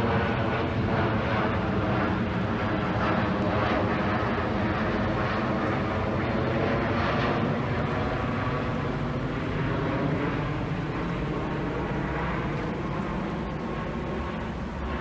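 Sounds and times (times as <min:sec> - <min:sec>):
aircraft engine rumble: 0:00.0 - 0:15.0.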